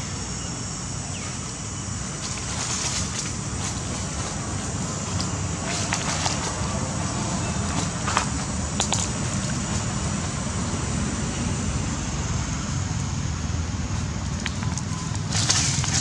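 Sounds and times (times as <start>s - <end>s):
high outdoor hiss: 0.0s - 16.0s.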